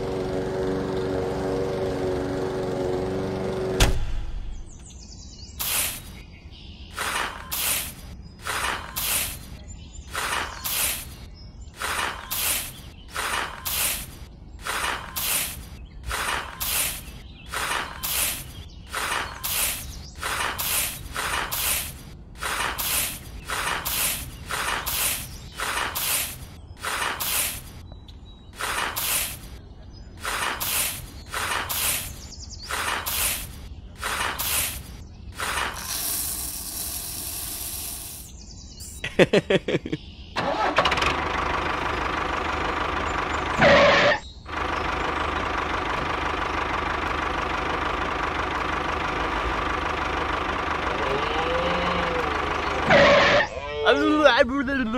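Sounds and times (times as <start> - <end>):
engine running: 0.0 - 4.9, 6.9 - 27.8, 28.5 - 38.3, 40.4 - 54.9
hiss: 5.6 - 6.1, 10.2 - 11.1, 11.8 - 27.7, 28.6 - 29.5, 30.2 - 38.3
quick run of clicks: 7.0 - 9.5, 11.8 - 27.8, 28.6 - 29.6, 30.2 - 38.2
metal shovel scraping rice grains: 11.8 - 27.6.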